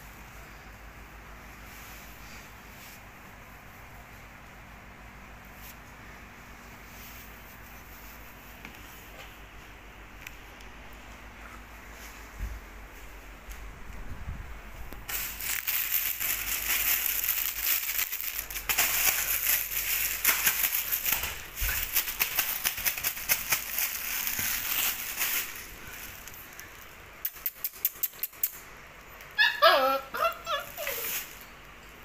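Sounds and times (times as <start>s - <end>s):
puppy yelp: 29.3s - 31.3s.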